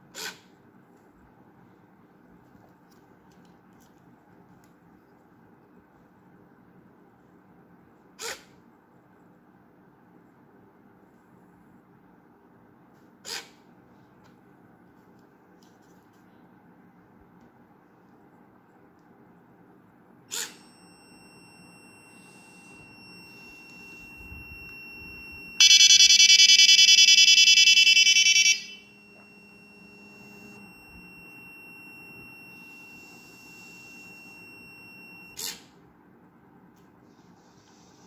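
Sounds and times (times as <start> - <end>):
faint steady high tone: 20.3 - 35.8
harsh pulsing electronic buzzer: 22.1 - 35.4.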